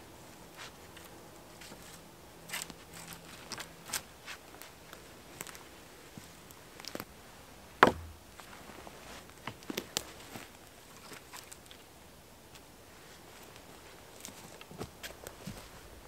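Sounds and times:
twigs crackling underfoot: 0.6 - 11.9, 12.5 - 15.9
loud wooden knock: 7.8 - 8.3
branches knocking and scraping: 7.8 - 8.8.

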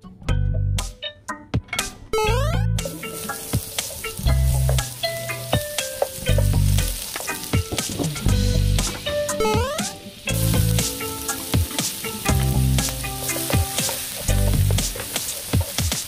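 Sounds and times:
background music with bass line: 0.0 - 16.0
butter sizzling in a pan: 2.9 - 16.0.

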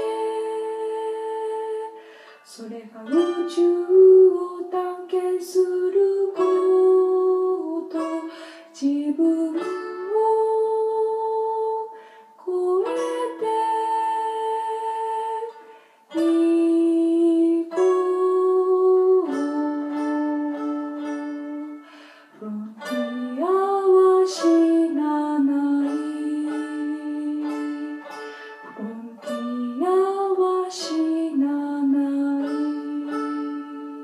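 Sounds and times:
mandolin: 0.0 - 34.0
woman singing long notes: 0.0 - 34.0.

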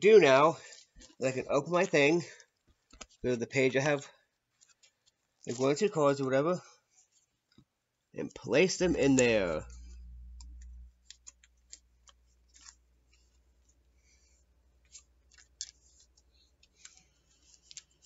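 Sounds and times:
trading cards being handled: 0.6 - 6.2, 8.4 - 18.0
low hum: 8.7 - 12.1.

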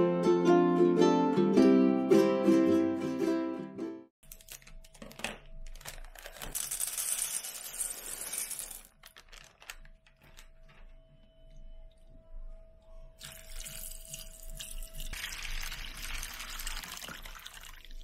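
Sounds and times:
plucked-string background music: 0.0 - 4.1.

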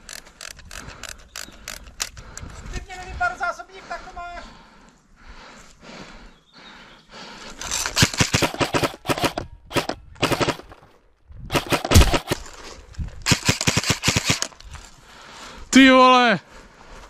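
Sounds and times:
airsoft gun full-auto bursts: 7.6 - 10.8, 11.5 - 12.4, 13.2 - 14.6.

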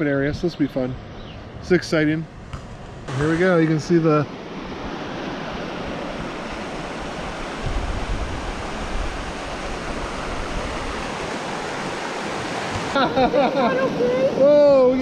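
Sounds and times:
low rumble: 2.3 - 4.9
river water rushing over rapids: 4.2 - 15.0.

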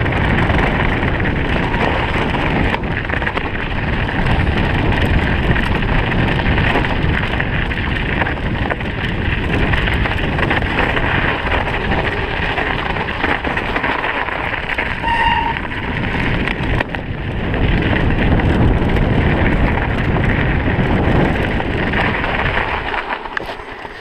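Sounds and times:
bike tyre and rattle noise: 0.0 - 24.0
wind buffeting microphone: 0.0 - 24.0
short squeak: 15.0 - 15.6.

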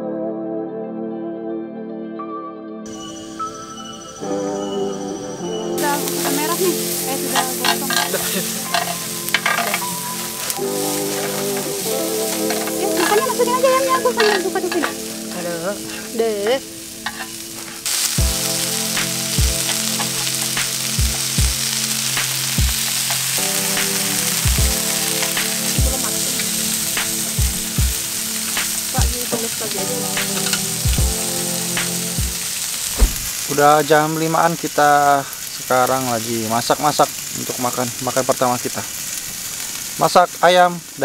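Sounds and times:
meat sizzling on grill pan: 5.8 - 41.0
chopsticks stirring meat: 6.1 - 17.8, 24.3 - 31.1.

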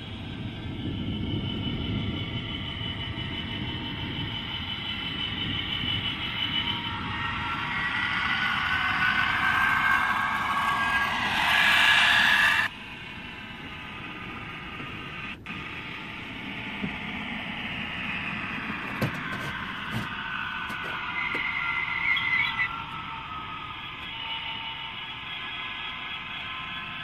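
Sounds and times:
low rumble: 0.0 - 27.0
model train whine: 0.0 - 27.0.

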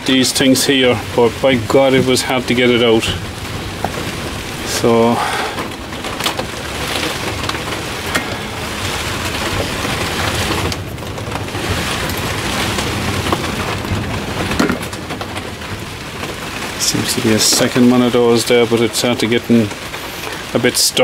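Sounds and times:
steady hiss: 0.0 - 10.9.

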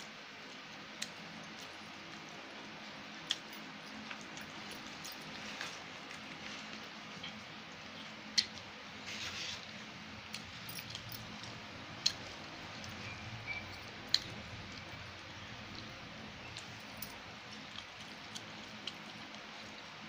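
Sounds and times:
soft squishing of food: 0.0 - 20.0.

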